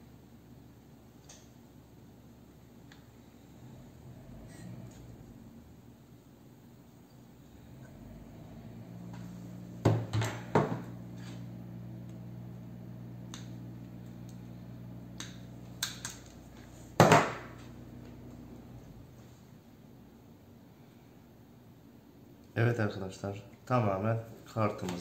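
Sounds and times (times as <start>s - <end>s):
steady low hum: 0.0s - 25.0s
knock on workbench: 9.8s - 10.9s, 17.0s - 17.4s.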